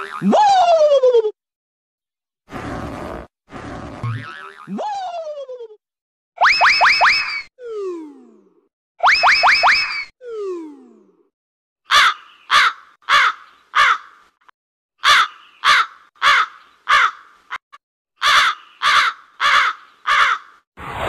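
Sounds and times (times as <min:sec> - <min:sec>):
crow cawing: 0:11.9 - 0:14.3, 0:15.0 - 0:17.6, 0:18.2 - 0:20.6.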